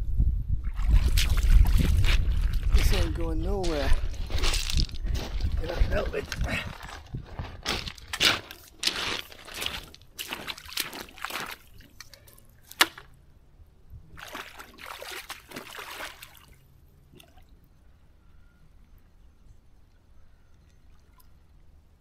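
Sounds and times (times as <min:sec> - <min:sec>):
legs splashing through water: 0:00.6 - 0:03.1, 0:08.3 - 0:13.1, 0:14.1 - 0:17.5
faint river: 0:08.3 - 0:22.0.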